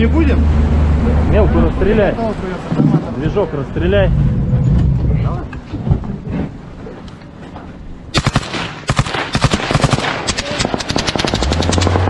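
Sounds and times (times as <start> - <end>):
automatic weapon fire: 8.1 - 12.0.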